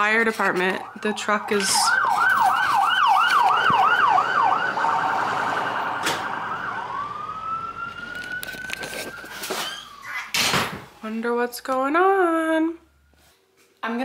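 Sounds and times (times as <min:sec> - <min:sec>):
fire truck siren: 0:00.0 - 0:10.5, 0:12.5 - 0:13.4.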